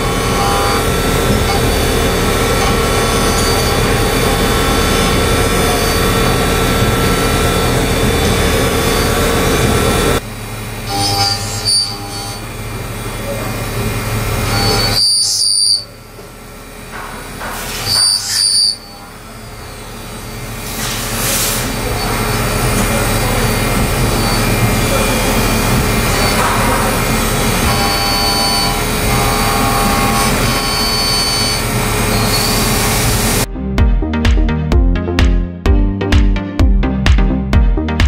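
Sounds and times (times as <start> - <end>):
high-pitched squeals: 0.0 - 10.2, 10.9 - 12.5, 14.4 - 16.0, 17.8 - 33.5
machine cutting metal: 0.0 - 33.5.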